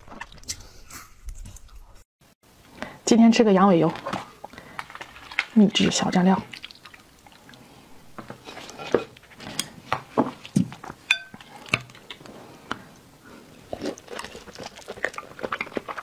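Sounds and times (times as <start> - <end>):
wet biting and chewing: 0.0 - 1.6, 13.5 - 16.0
chopsticks scraping in porcelain bowl: 8.4 - 9.7
chopstick clink on bowl: 11.1 - 11.4.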